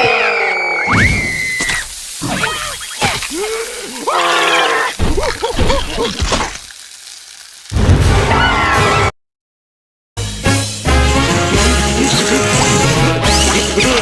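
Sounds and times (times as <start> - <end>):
cartoon characters screaming: 0.0 - 6.1, 8.2 - 9.1
sizzling hiss: 1.0 - 8.0
wet splat: 1.6 - 3.6, 5.0 - 6.8.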